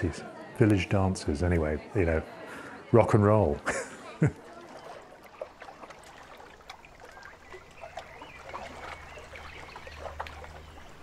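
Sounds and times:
water lapping at shore: 0:03.6 - 0:11.0
bird calls: 0:04.6 - 0:11.0.

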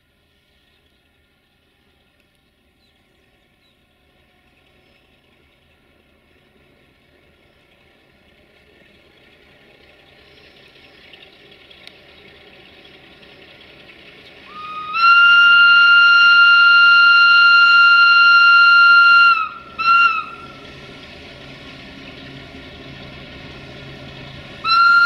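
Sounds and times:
freight train rumble: 0:00.0 - 0:25.0
locomotive whistle blasts: 0:14.4 - 0:20.8, 0:24.6 - 0:25.0.

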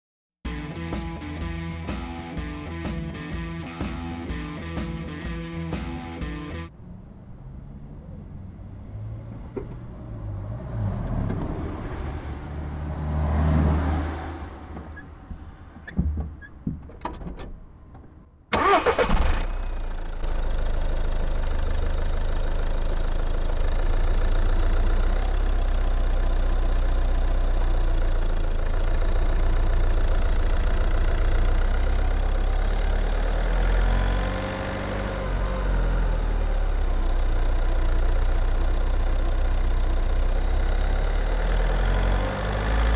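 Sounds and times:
diesel engine cranking: 0:14.2 - 0:22.6
clicks and knocks: 0:14.8 - 0:18.2
diesel engine idling: 0:18.5 - 0:42.9.

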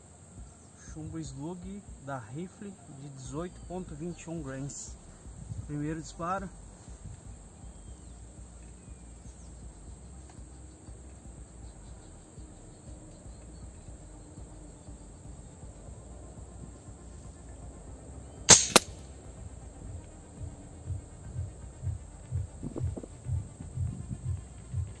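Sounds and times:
air rifle shot cracks: 0:18.5 - 0:19.0.

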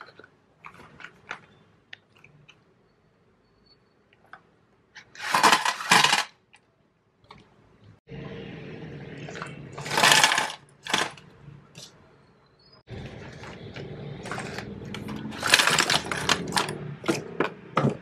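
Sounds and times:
coffee capsules clattering into metal tin: 0:05.2 - 0:06.3, 0:14.3 - 0:16.8.

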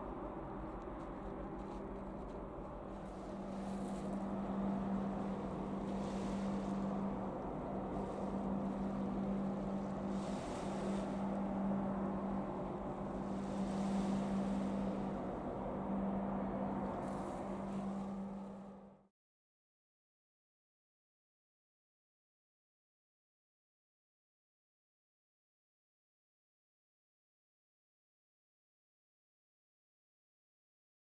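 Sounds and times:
waves washing onto beach: 0:00.6 - 0:18.8
ship engines droning: 0:03.1 - 0:18.9.

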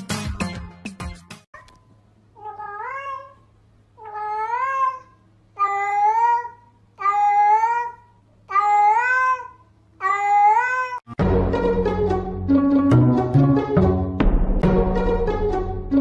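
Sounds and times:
cat meowing: 0:02.4 - 0:03.4, 0:04.0 - 0:11.0.

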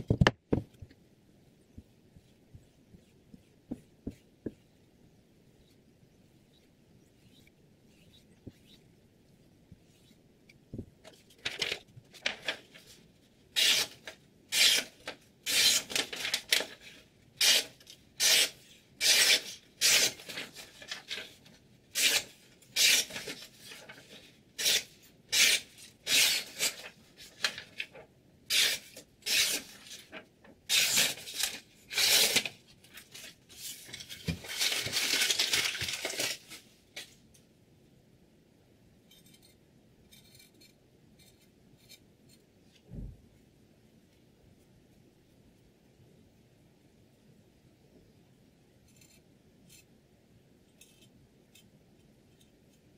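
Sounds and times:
paper rustle: 0:11.0 - 0:14.2, 0:15.0 - 0:17.1, 0:20.0 - 0:24.4, 0:26.5 - 0:28.1, 0:28.7 - 0:37.2
knife slicing paper: 0:13.6 - 0:16.8, 0:21.9 - 0:27.6, 0:28.5 - 0:36.6.

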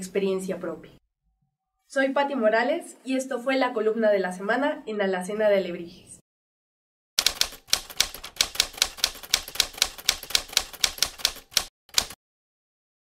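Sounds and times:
typewriter keys striking: 0:07.2 - 0:12.2.

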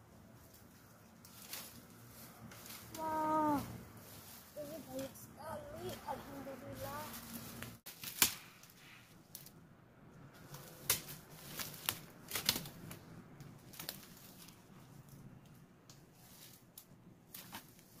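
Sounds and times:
fern fronds rustling: 0:00.0 - 0:09.6, 0:10.2 - 0:18.0
fern stems snapping: 0:01.2 - 0:03.2, 0:07.1 - 0:09.6, 0:10.3 - 0:17.9.

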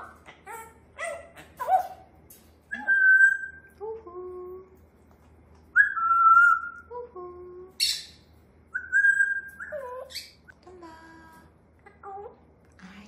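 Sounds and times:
parrot whistling: 0:02.7 - 0:03.7, 0:05.8 - 0:06.8, 0:07.8 - 0:10.4.

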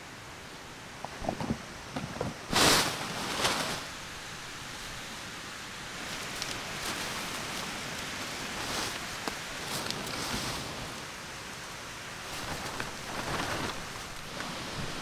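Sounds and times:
rain hissing: 0:00.0 - 0:15.0
tent fabric rustling: 0:02.1 - 0:05.0, 0:06.0 - 0:11.0, 0:12.2 - 0:15.0.

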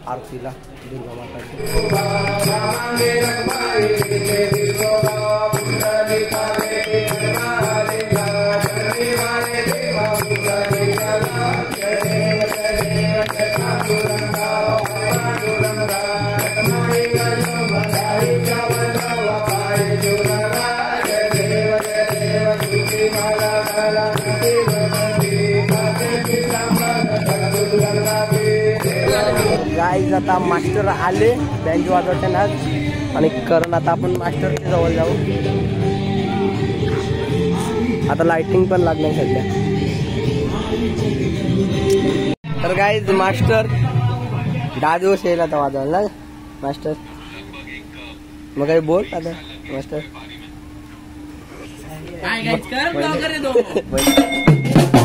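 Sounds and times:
bells ringing rhythmically: 0:01.6 - 0:35.2, 0:53.8 - 0:55.0
devotional chant singing: 0:01.6 - 0:45.6.

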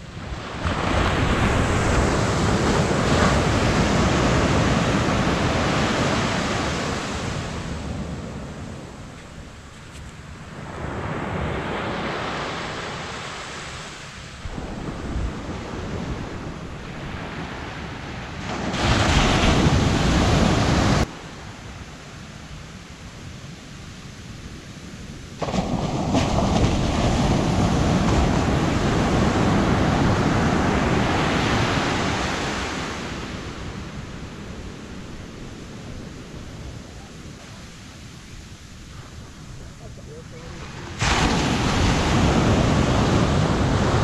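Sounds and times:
ocean surf washing on sand: 0:00.0 - 0:44.0.

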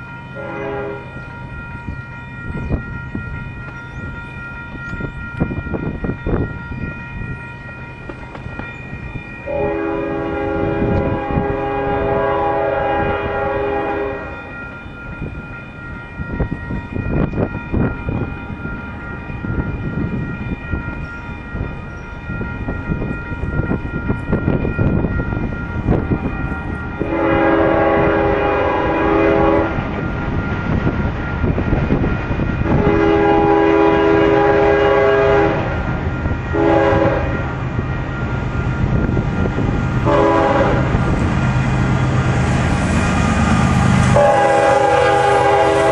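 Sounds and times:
low train rumble: 0:00.0 - 0:45.9
locomotive air horn blasts: 0:00.4 - 0:01.1, 0:09.4 - 0:14.5, 0:27.0 - 0:29.8, 0:32.6 - 0:35.8, 0:36.5 - 0:37.5, 0:40.0 - 0:41.0, 0:43.5 - 0:45.9.

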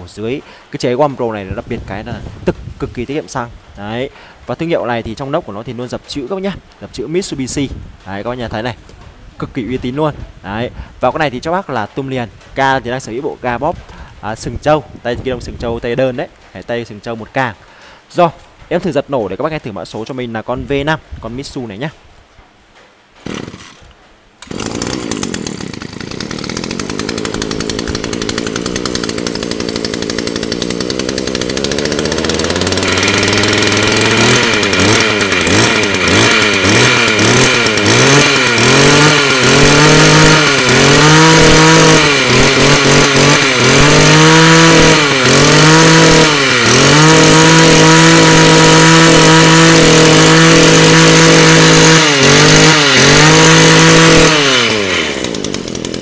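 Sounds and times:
brush-cutter engine pull-started: 0:23.2 - 0:56.0
brush-cutter engine revving: 0:23.2 - 0:56.0.

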